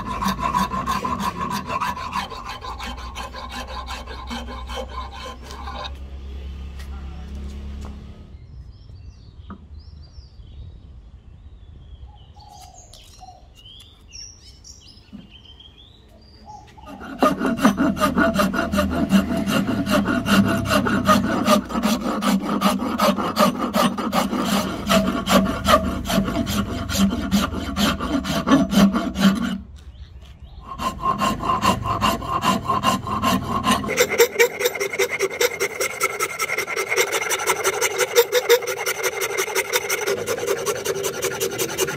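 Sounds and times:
rasp filing wood: 0.0 - 6.0, 16.8 - 29.7, 30.6 - 41.9.

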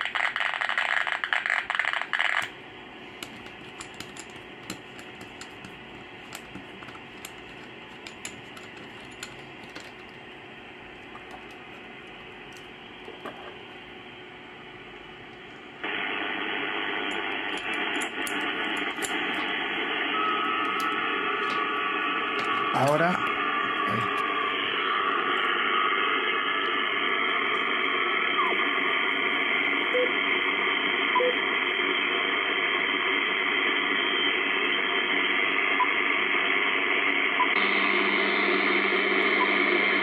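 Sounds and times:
radio static hiss: 0.0 - 40.0
steady whistle tone: 20.0 - 26.5.

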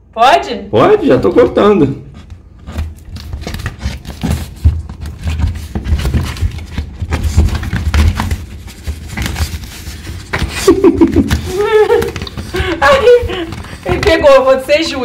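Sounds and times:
paper rustling and scraping: 2.1 - 15.0
small knocks and thumps: 2.7 - 14.6.

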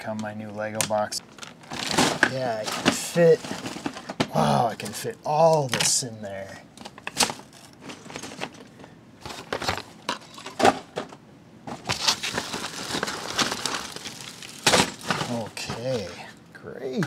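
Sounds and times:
plastic bags crinkling: 1.3 - 4.2, 11.8 - 16.1.

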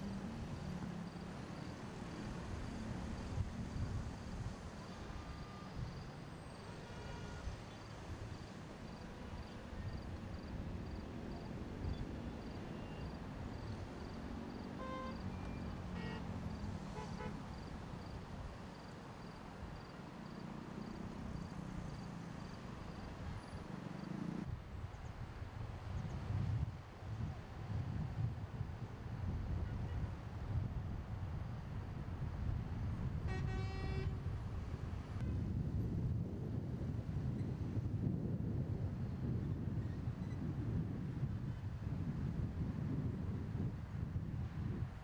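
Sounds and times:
distant street traffic rumble: 0.0 - 24.5
car horns tooting: 6.8 - 7.6, 14.8 - 16.3, 16.9 - 17.5, 33.3 - 34.2.

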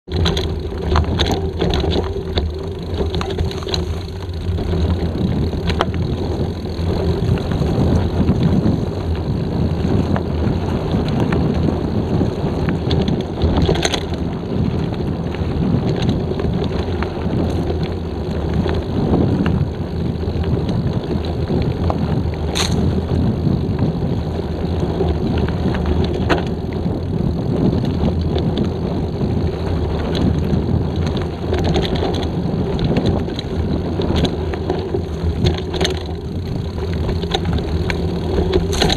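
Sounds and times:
bike rattling: 0.0 - 38.9
tyres on dirt: 0.0 - 38.9
wind on microphone: 0.0 - 38.9
sharp clicks and knocks: 0.1 - 7.6, 32.9 - 38.9.

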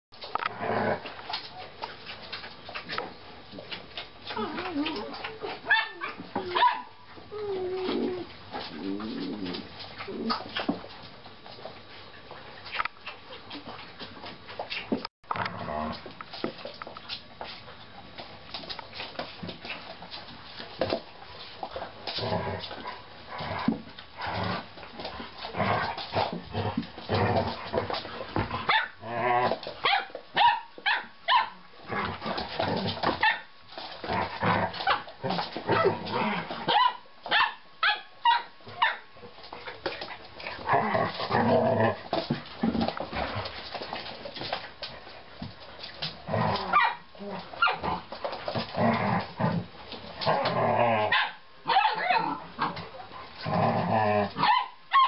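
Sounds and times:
dogs barking yipping and growling: 4.2 - 7.3, 24.4 - 39.1, 46.3 - 52.9, 54.2 - 55.0.

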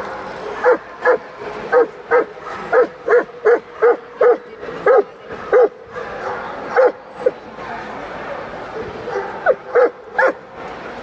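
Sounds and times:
murmur of hall: 0.0 - 11.0
dog barking: 0.6 - 7.0, 9.1 - 10.4.

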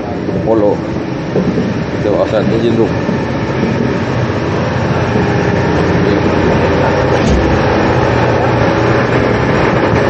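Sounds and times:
engine room machinery drone: 0.0 - 10.0
brief knock: 7.2 - 7.6.

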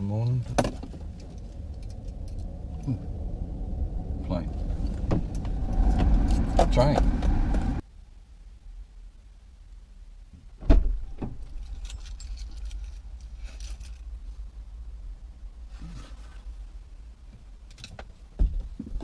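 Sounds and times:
steady rumble: 0.0 - 10.3
car door thumping: 5.0 - 7.6
faint metallic jingling: 11.4 - 14.1.

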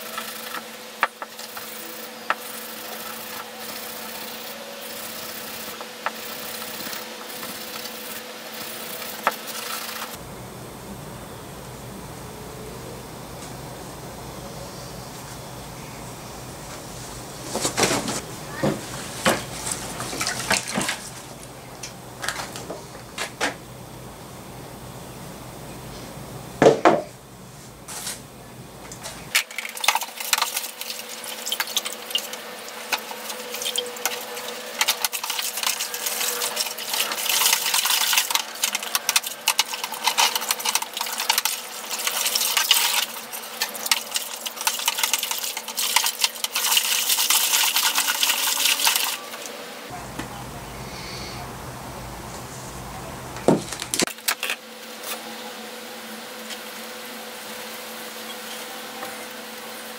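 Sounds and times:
water sloshing in bucket: 19.3 - 21.3.

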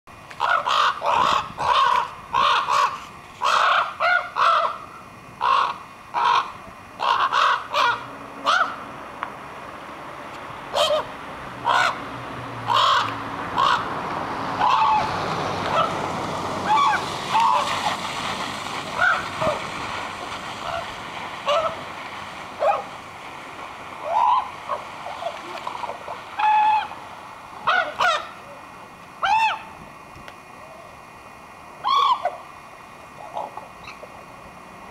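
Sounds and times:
steady rushing noise: 0.1 - 34.9
ravens croaking: 0.3 - 9.0, 10.6 - 23.0, 23.8 - 29.8.

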